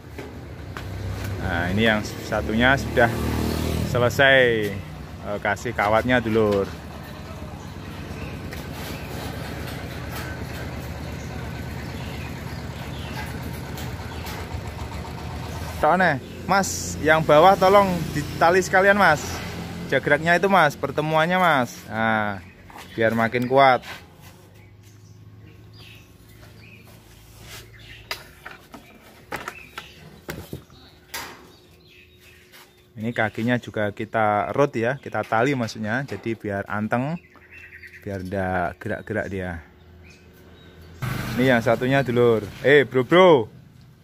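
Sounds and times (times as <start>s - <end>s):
engine idling: 5.1s - 19.4s.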